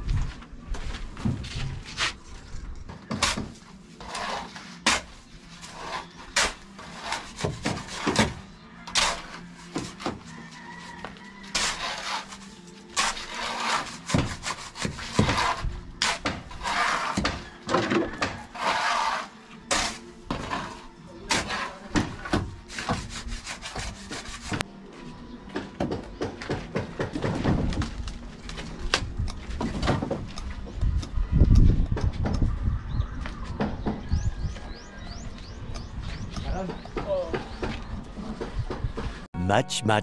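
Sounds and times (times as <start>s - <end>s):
sharp knocks and scrapes: 1.2s - 10.2s, 11.5s - 24.7s
shovels scraping wet mortar: 3.1s - 8.3s, 11.5s - 17.4s, 18.4s - 21.9s.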